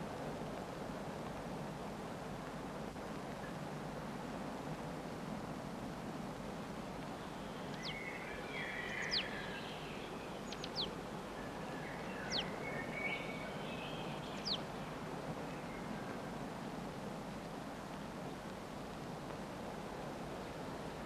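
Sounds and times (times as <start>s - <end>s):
steady background noise: 0.0s - 21.0s
chickadee calling: 7.2s - 14.8s.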